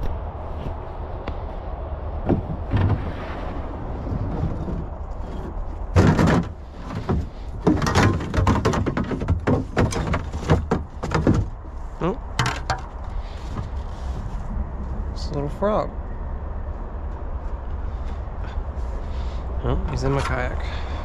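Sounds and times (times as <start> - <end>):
plastic kayak scraping and thumping: 2.3 - 11.7
paddle knocking against hull: 6.0 - 11.5.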